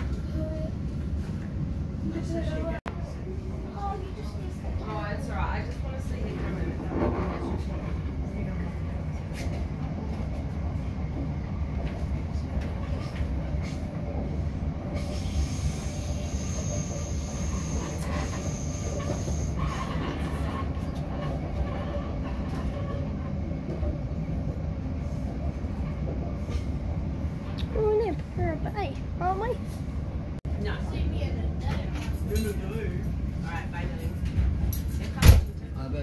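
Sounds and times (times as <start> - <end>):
train wheels rumbling on rails: 3.6 - 35.2
high-pitched wheel squeal: 15.2 - 20.0.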